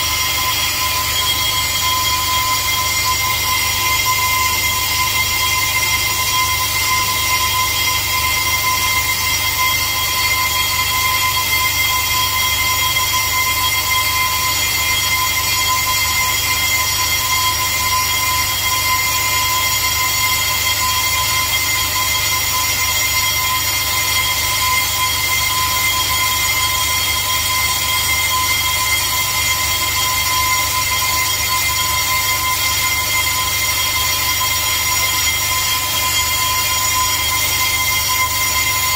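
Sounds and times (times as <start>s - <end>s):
brake lathe whine: 0.0s - 38.9s.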